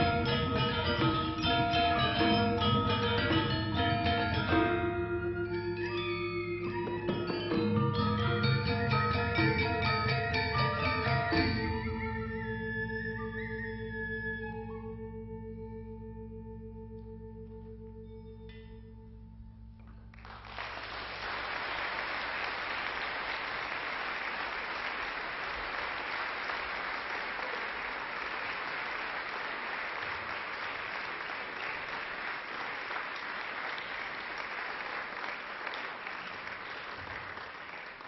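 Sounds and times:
audience applause: 0:20.2 - 0:38.0.

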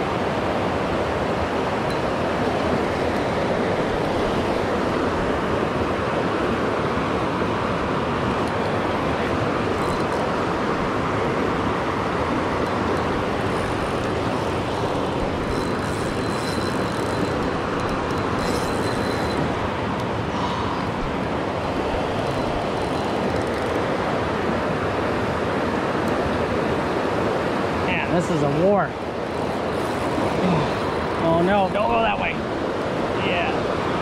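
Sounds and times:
river water rushing over rocks: 0:00.0 - 0:34.0
fishing reel whine: 0:01.3 - 0:05.8, 0:08.4 - 0:24.4, 0:28.0 - 0:33.6.

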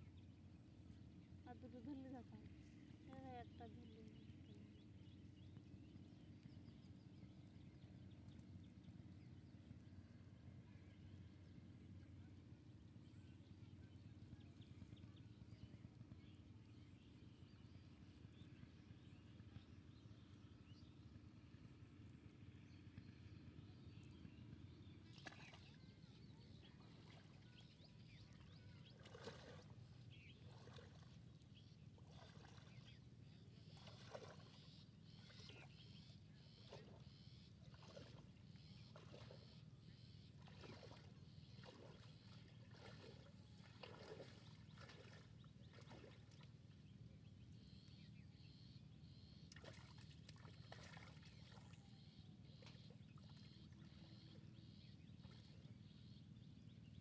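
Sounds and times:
low steady rumble: 0:00.0 - 0:49.5
low steady hum: 0:00.0 - 0:57.0
water sloshing from wading: 0:24.8 - 0:56.2.

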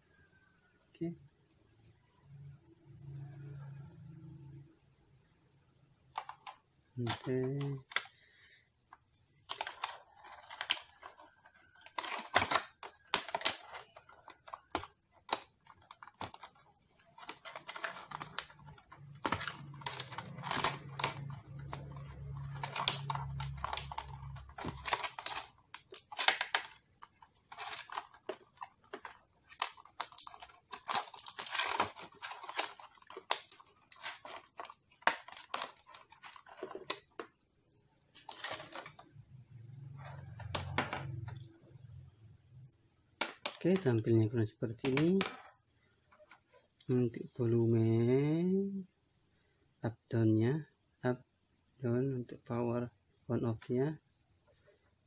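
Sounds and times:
plastic packaging crinkling: 0:09.4 - 0:37.4, 0:38.1 - 0:39.1, 0:44.7 - 0:45.5.

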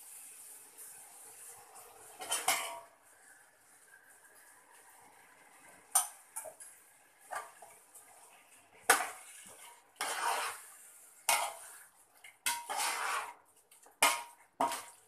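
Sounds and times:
ladle scraping pot: 0:08.9 - 0:15.0.

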